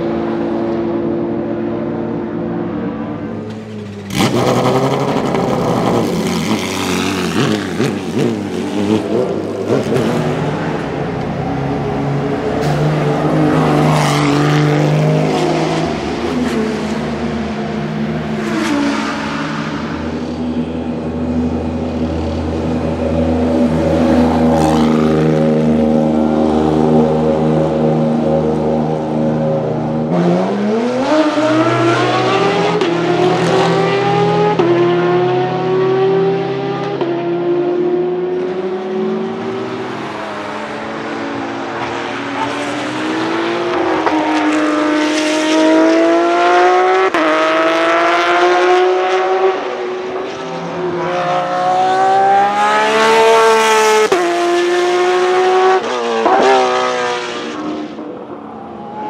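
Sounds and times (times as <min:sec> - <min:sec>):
car engine accelerating hard: 0:03.9 - 0:17.5.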